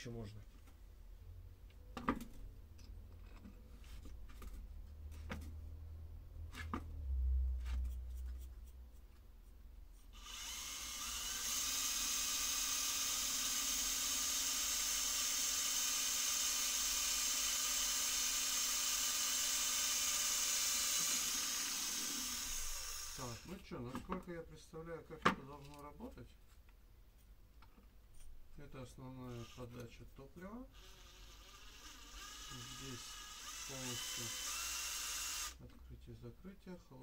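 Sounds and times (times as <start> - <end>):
small electric drill running: 10.2 - 23.6, 29.2 - 29.8, 30.7 - 35.6.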